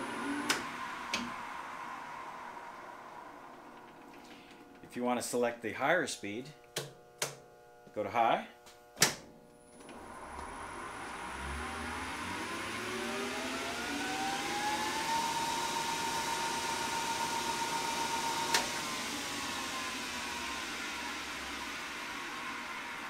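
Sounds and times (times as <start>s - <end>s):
lathe motor whine: 0.0s - 4.9s, 9.7s - 23.0s.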